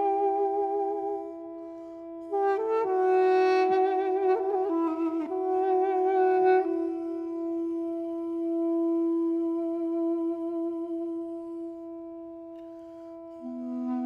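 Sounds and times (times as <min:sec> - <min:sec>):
wind instrument long note: 0:00.0 - 0:14.0.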